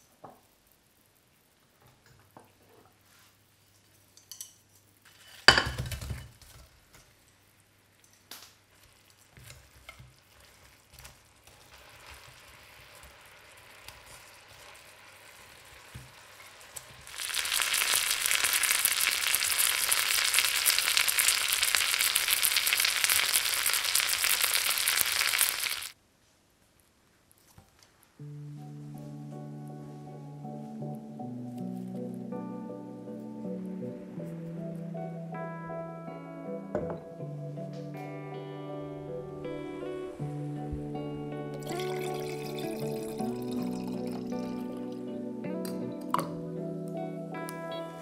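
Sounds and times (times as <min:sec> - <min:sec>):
chicken sizzling in sauce: 0:08.7 - 0:26.0.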